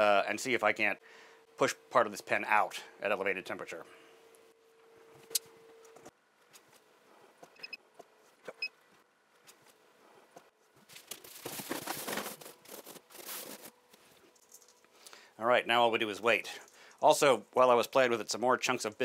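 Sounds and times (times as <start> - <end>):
rustling and scraping: 9.4 - 14.9.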